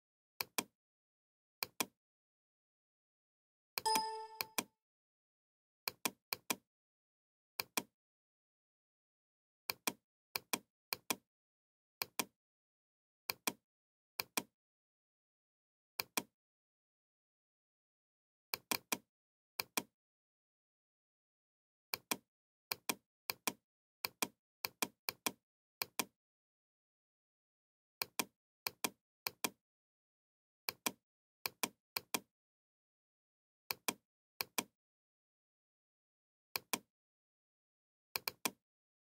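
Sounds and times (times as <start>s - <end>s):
computer mouse button clicks: 3.8s - 4.7s.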